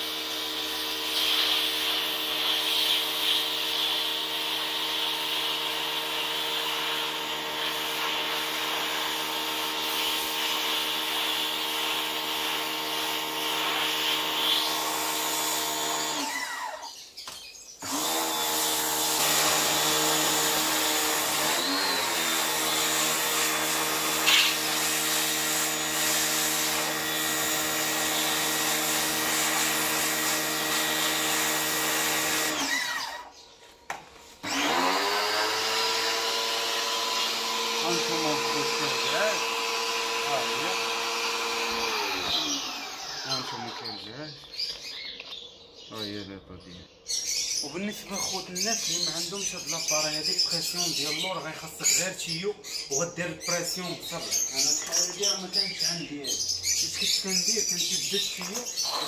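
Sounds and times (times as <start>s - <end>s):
pressure washer motor humming: 0.0s - 17.0s, 17.8s - 33.4s, 34.3s - 44.0s, 50.9s - 59.0s
water jet hissing: 0.6s - 4.1s.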